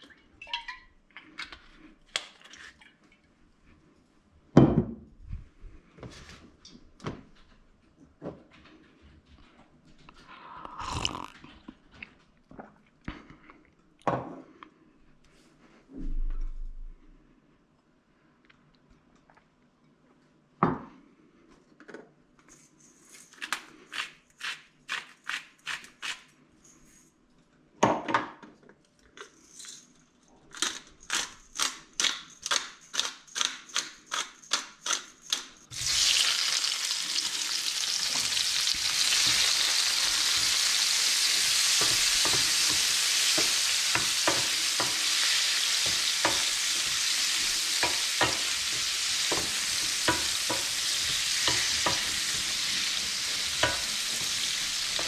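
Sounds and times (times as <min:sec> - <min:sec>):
prawns sizzling in a frying pan: 0:35.7 - 0:55.0
wooden spatula scraping: 0:38.1 - 0:55.0.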